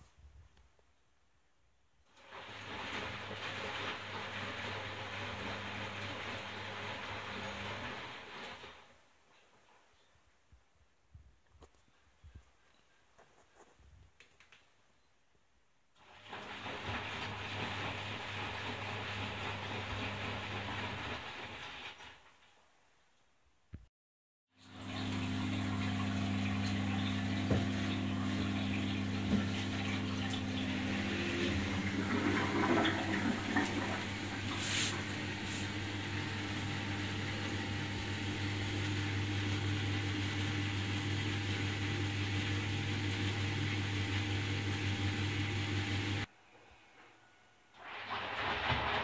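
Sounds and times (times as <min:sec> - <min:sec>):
washing machine humming: 0:02.1 - 0:08.9, 0:16.0 - 0:22.0, 0:24.6 - 0:46.3
water sloshing in drum: 0:24.9 - 0:37.4.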